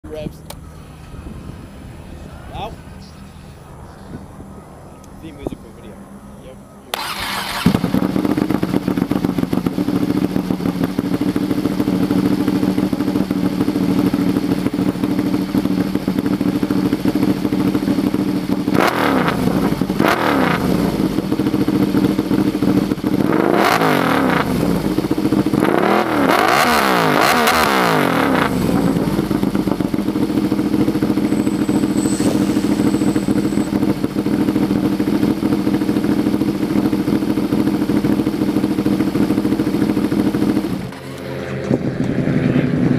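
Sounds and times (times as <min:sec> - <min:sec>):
motorcycle engine idling and revving: 0:00.0 - 0:42.9.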